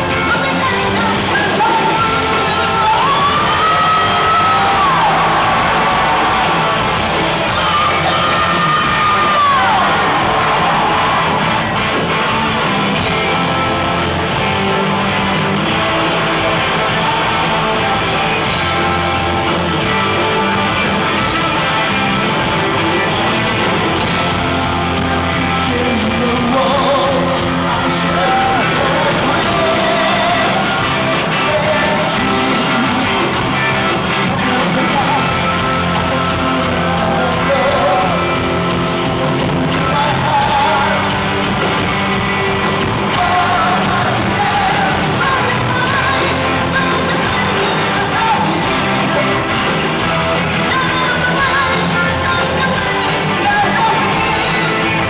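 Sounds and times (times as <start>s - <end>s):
lead vocals singing: 0.0s - 18.8s, 19.4s - 55.0s
live rock band playing: 0.0s - 55.0s.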